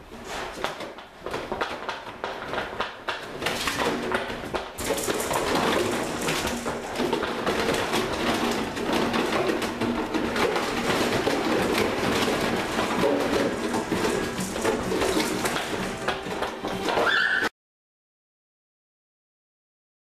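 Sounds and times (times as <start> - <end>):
plastic jugs clattering: 0.0 - 17.5.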